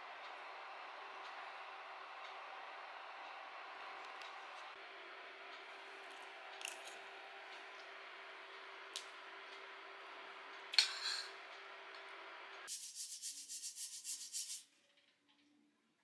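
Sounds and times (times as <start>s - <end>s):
low room hum: 0.0s - 14.0s
brushing or scrubbing strokes: 12.7s - 14.6s.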